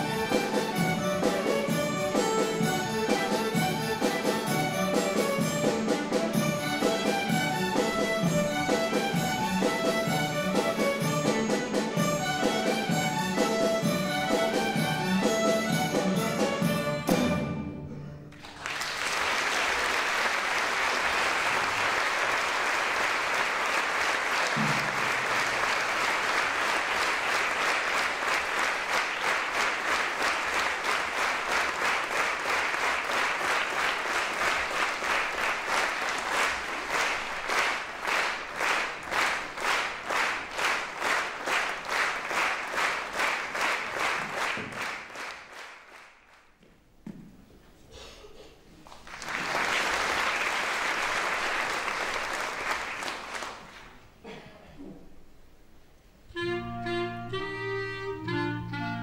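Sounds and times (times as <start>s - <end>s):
rhythmic unison clapping: 0.0s - 16.6s, 18.3s - 46.8s, 48.8s - 54.2s
instrumental string music: 0.0s - 18.4s, 56.3s - 59.0s
audience applause: 18.3s - 46.5s, 48.8s - 54.1s.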